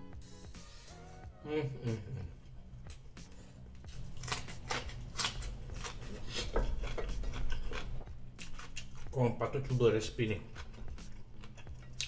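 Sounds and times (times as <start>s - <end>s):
crisp wet chewing crunches: 4.2s - 9.1s.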